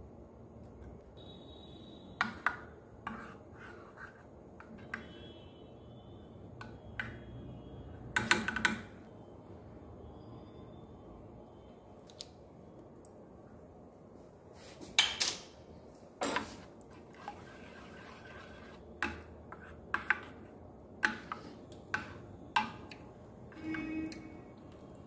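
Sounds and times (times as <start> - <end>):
spoon scraping a bowl: 3.0 - 5.1, 16.3 - 22.8, 23.5 - 24.3.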